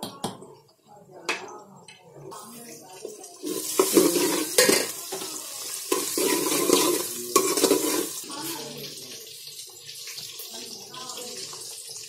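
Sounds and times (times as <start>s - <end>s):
onions sizzling in oil: 2.3s - 12.0s
metal spoon scraping pot: 3.4s - 5.0s, 5.7s - 8.2s.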